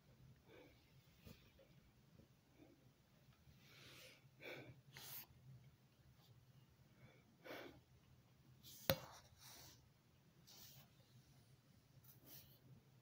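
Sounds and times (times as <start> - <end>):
faint soft rustles: 8.6 - 13.0.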